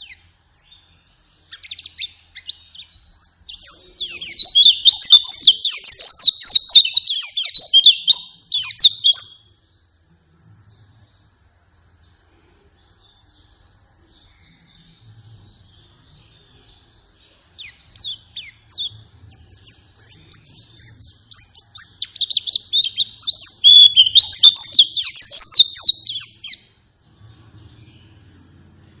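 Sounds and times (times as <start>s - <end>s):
birds twittering: 0.0s - 29.0s.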